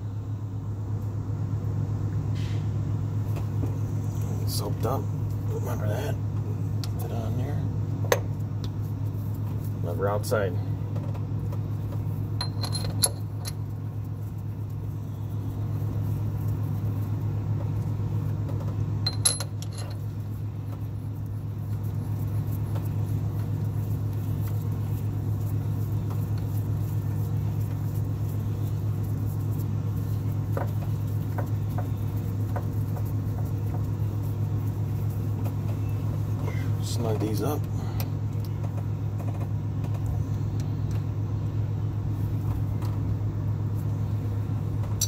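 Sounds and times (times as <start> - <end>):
steady low hum: 0.0 - 45.0
sharp metallic clinks: 12.4 - 13.6, 19.0 - 20.1.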